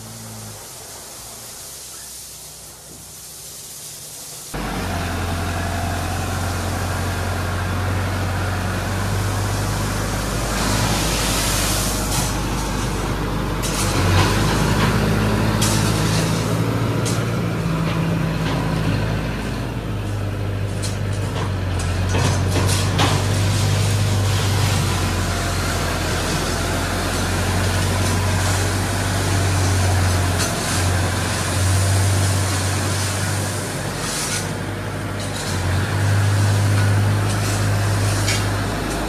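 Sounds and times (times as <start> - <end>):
brief hiss: 0.0 - 4.9
tractor diesel engine running: 0.0 - 39.0.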